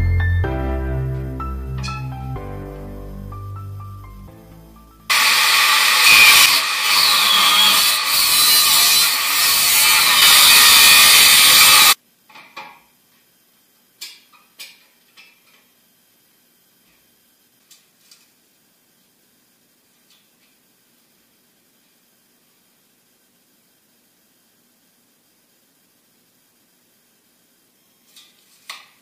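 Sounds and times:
angle grinder cutting steel: 5.1 - 12.0.

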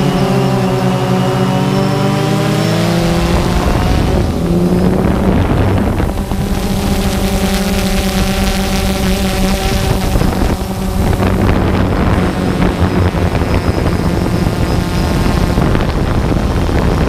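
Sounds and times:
drone propellers humming: 0.0 - 17.0
wind rumble on microphone: 0.0 - 17.0.

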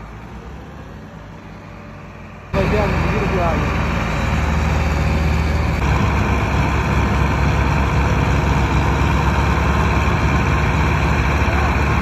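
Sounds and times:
diesel tractor engine straining: 0.0 - 12.0.

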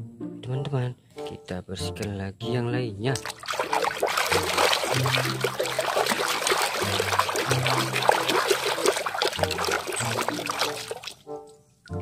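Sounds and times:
background music with bass: 0.0 - 3.3
soapy water splashing: 3.2 - 11.2.

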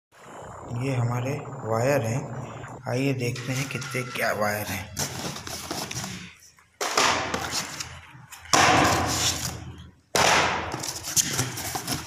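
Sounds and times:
cardboard cartons rustling and scraping: 5.0 - 6.6, 7.3 - 8.5, 9.1 - 9.7, 10.7 - 12.0.

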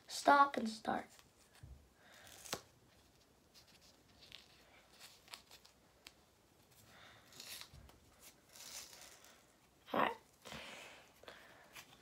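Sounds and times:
tape peeling and rustling: 1.0 - 10.4.

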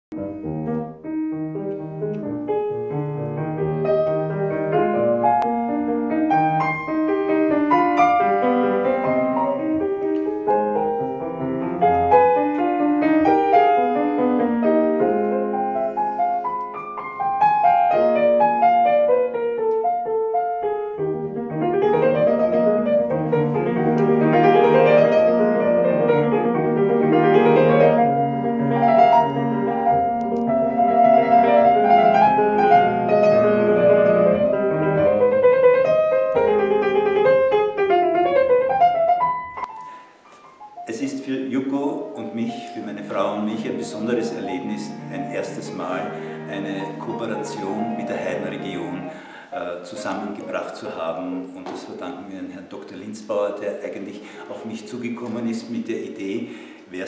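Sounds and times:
solo piano classical music: 0.1 - 57.0.

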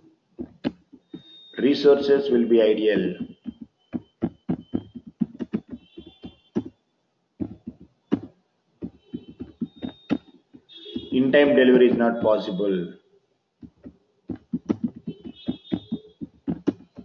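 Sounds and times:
computer keyboard typing: 2.9 - 6.7, 7.4 - 11.1, 13.6 - 17.0.

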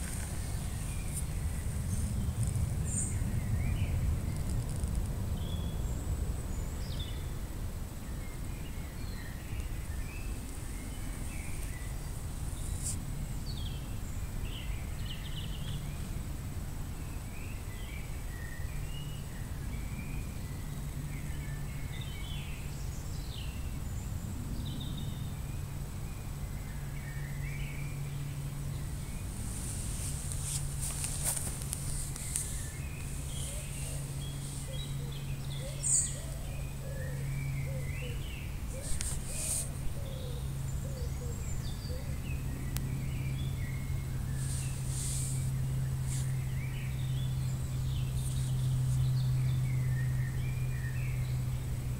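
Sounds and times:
small birds chirping: 0.0 - 51.9
brief crackle: 4.3 - 5.2.

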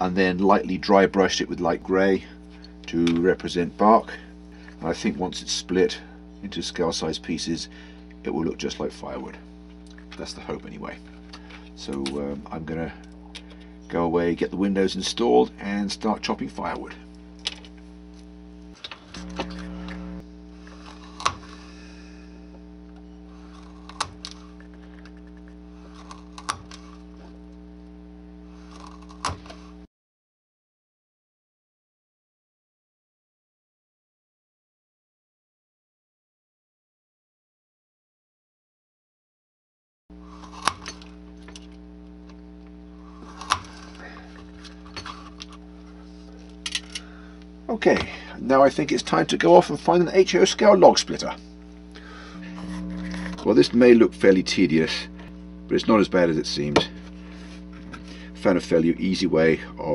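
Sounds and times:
electrical hum: 0.0 - 29.9, 40.1 - 59.9
blade cutting wooden dowel: 20.6 - 21.8, 43.1 - 44.0.

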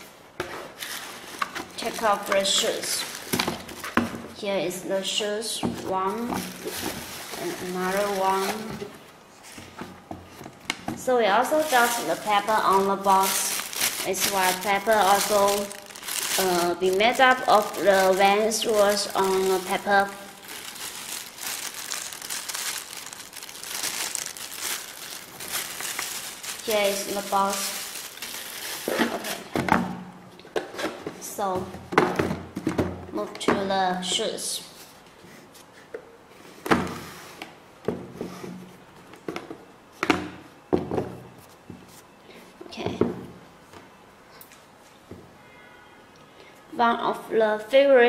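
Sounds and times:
tissue paper crinkling: 0.8 - 3.9, 6.4 - 8.7, 11.4 - 29.3.

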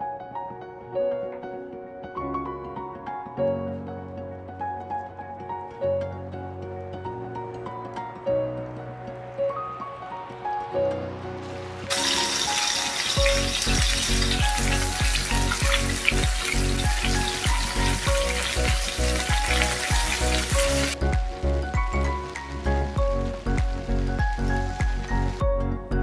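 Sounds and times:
background music with steady beat: 0.0 - 26.0
meat sizzling in hot oil: 11.8 - 25.4.

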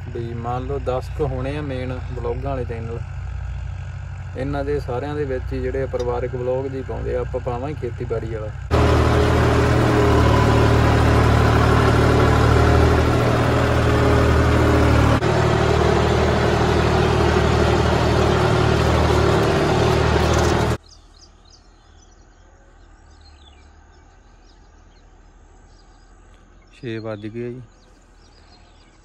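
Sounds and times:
tractor diesel engine running: 0.0 - 20.8
faint outdoor background: 0.0 - 29.0.

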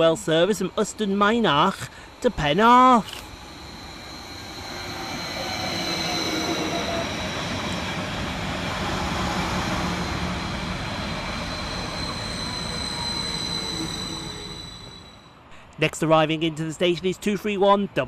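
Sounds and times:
train wheels rumbling on rails: 0.0 - 15.2
high-pitched whine: 0.0 - 15.4
low hum: 0.0 - 15.5.

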